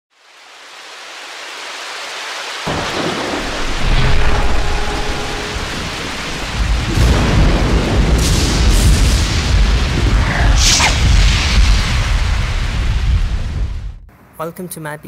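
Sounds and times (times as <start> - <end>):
rain hiss: 0.1 - 13.8
low thunder rumble: 2.7 - 14.1.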